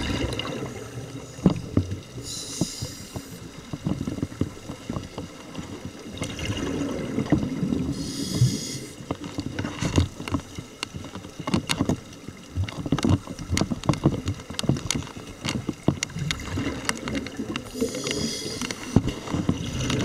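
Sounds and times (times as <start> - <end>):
rush of exhaled bubbles: 0.0 - 1.4, 6.1 - 8.6
low underwater gurgling: 0.0 - 4.3, 5.8 - 9.0.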